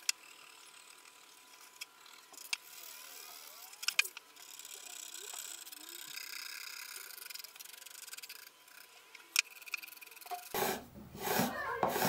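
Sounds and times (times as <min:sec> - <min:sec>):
sanding and scraping wood: 0:10.5 - 0:12.0.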